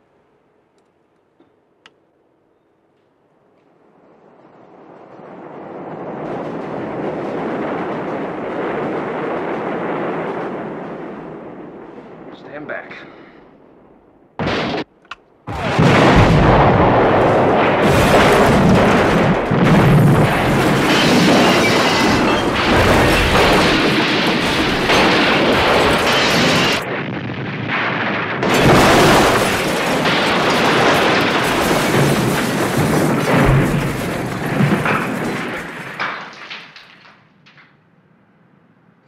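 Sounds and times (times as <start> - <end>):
rumble of collapsing debris: 3.8 - 37.9
sharp explosion blast: 14.4 - 14.9, 15.5 - 36.3.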